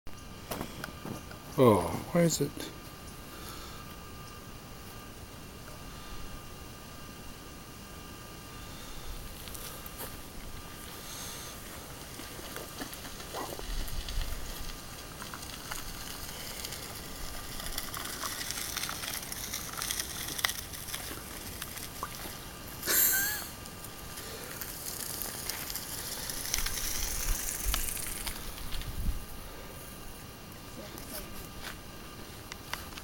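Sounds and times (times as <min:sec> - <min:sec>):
bicycle tyres crunching on gravel: 0:08.6 - 0:30.2
small stones ticking: 0:12.0 - 0:22.4, 0:23.8 - 0:28.9.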